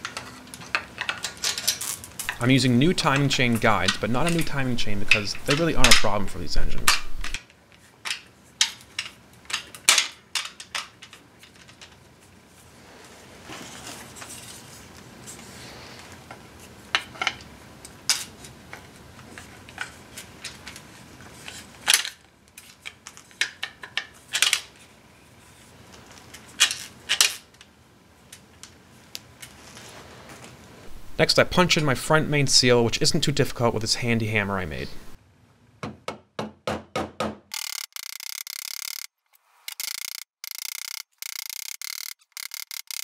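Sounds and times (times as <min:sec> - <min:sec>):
metallic clicks and clinks: 0:39.7 - 0:43.0.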